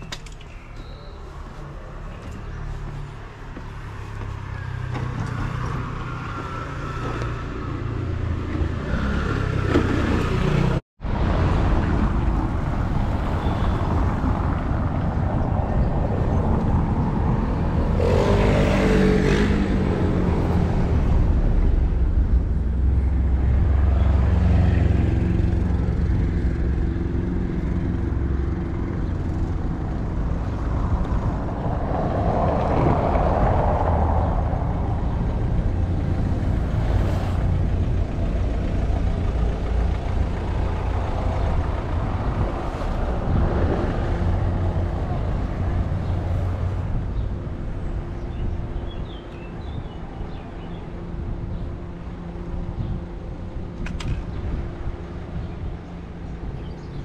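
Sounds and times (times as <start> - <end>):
vehicles passing: 0.0 - 57.0
deep engine hum: 14.4 - 57.0.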